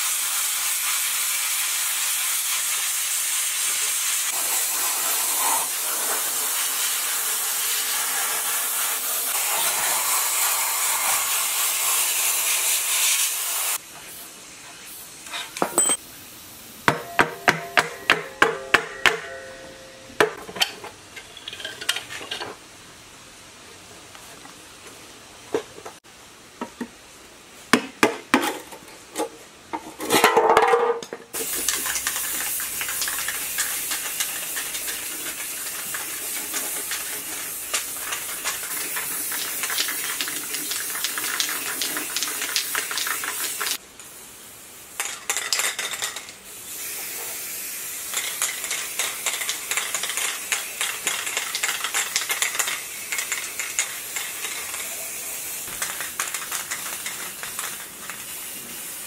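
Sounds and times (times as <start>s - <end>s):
spray paint can hissing: 0.0s - 15.1s, 31.4s - 44.2s, 46.5s - 59.0s.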